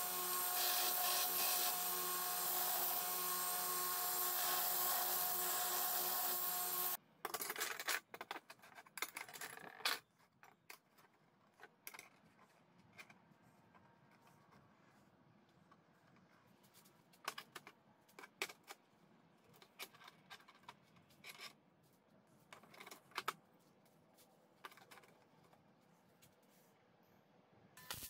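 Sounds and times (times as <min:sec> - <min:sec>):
belt grinder motor humming: 0:00.0 - 0:07.0
metal parts clicking and knocking: 0:07.2 - 0:12.4.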